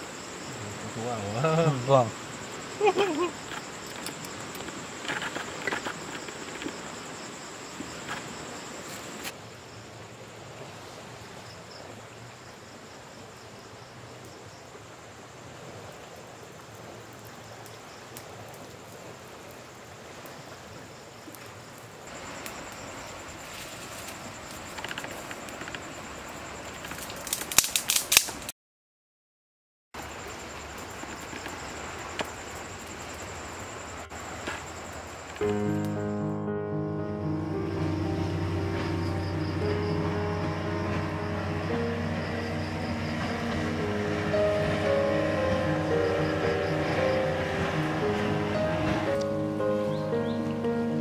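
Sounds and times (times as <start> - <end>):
insect trilling: 0.0 - 9.3, 37.2 - 48.7.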